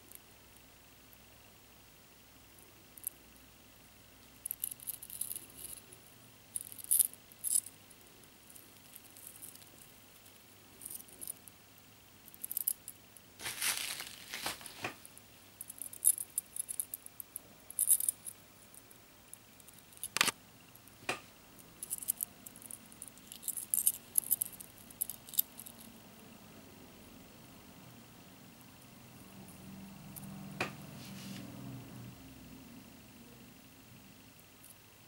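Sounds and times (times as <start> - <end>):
bubble wrap rustling: 13.4 - 15.0.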